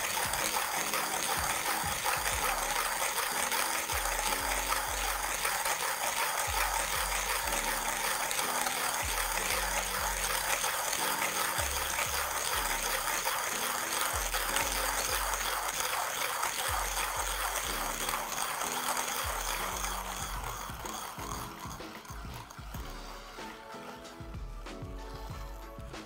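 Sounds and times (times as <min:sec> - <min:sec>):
hand grinder grinding coffee beans: 0:00.0 - 0:23.8
background music with bass: 0:19.3 - 0:26.0.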